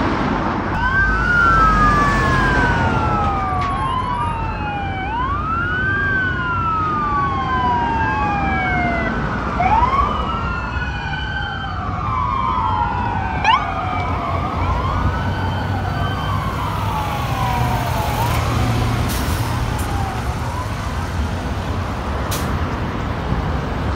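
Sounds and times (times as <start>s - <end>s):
engine and traffic rumble: 0.0s - 23.9s
sirens wailing: 0.7s - 23.9s.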